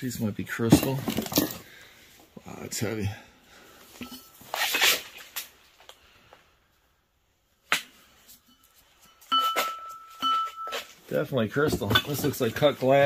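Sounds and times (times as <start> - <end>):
crystal object being handled: 8.2 - 11.1.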